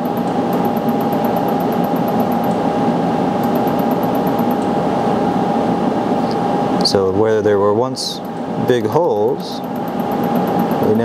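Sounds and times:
laser welder rapid high ticks: 0.0s - 2.5s, 3.4s - 4.6s
fan-like hum: 0.0s - 11.0s.

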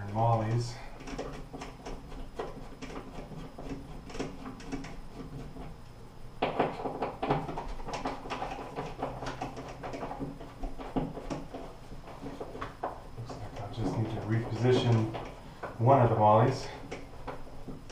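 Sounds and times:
screwdriver turning a screw: 1.0s - 5.6s.

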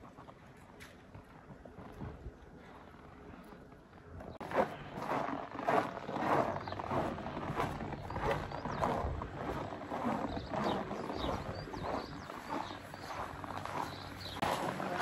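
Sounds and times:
footsteps crunching on snow: 4.3s - 15.0s.

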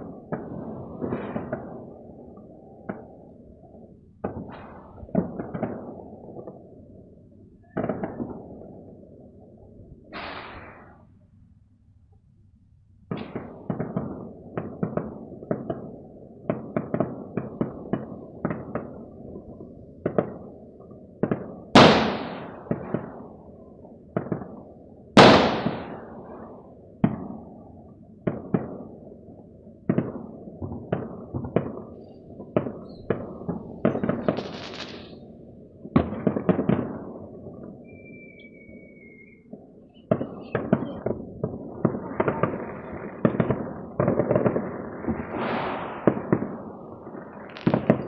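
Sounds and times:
fireworks banging and echoing: 0.0s - 6.8s, 7.6s - 11.0s, 13.1s - 48.0s
firework crackling hiss: 10.1s - 11.0s, 34.0s - 35.3s, 44.7s - 48.0s
loud nearby firework booms: 21.3s - 23.2s, 25.2s - 26.1s, 32.5s - 35.1s, 40.1s - 48.0s.

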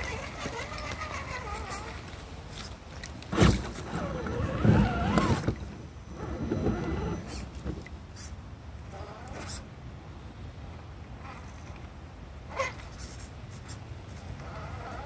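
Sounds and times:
electric motor and gears whining: 0.0s - 2.2s, 3.3s - 7.8s.

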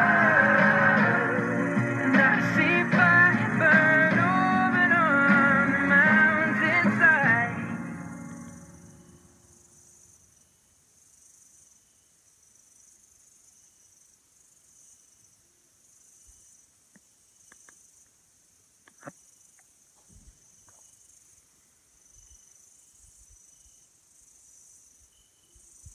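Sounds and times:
night insects chirring: 0.0s - 25.9s
faint clicks: 16.9s - 18.2s.

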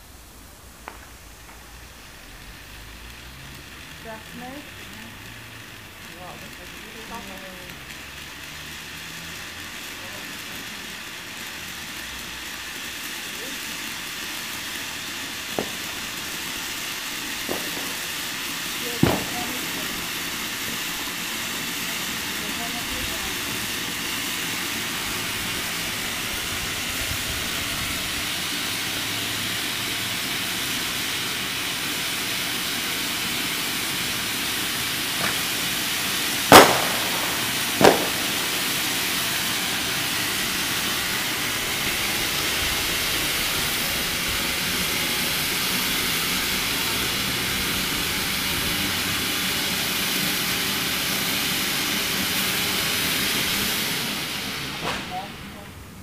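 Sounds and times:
firework fountain hissing: 0.0s - 56.0s
sharp bangs: 15.5s - 16.1s, 18.9s - 19.9s, 36.3s - 42.5s.

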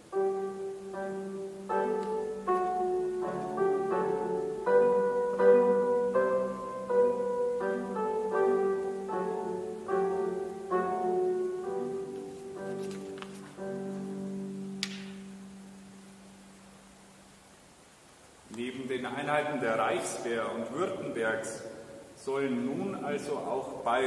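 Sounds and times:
electric piano melody: 0.0s - 16.0s.

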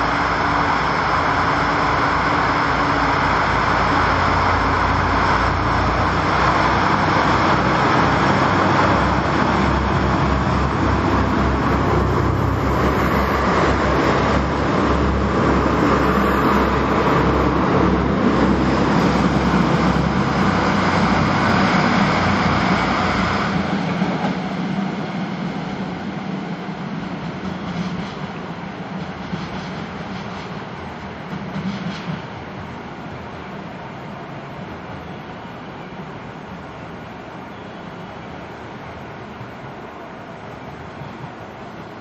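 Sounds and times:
diesel railcar engines running: 0.0s - 42.0s.

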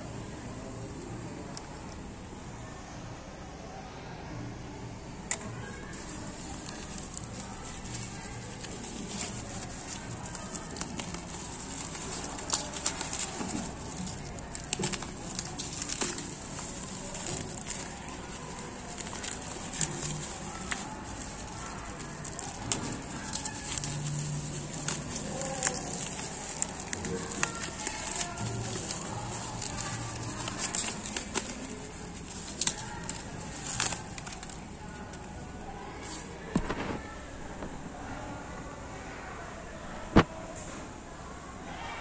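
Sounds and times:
sharp plastic crackles: 5.2s - 37.8s
bubble wrap crinkling: 5.3s - 37.2s.

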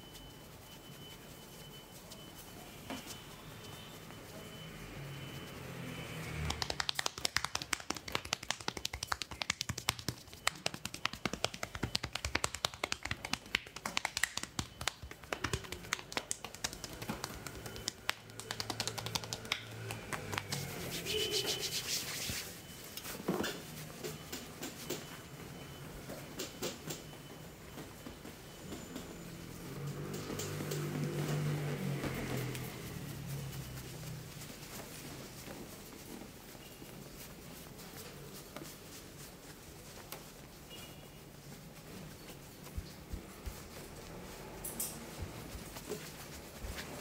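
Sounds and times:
hands slapping on back: 6.5s - 22.4s.

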